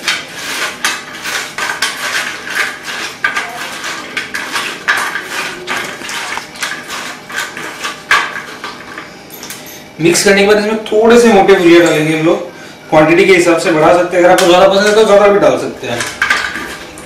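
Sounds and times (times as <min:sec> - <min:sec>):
crunching and scraping on metal plate: 0:00.0 - 0:09.2, 0:15.8 - 0:17.0.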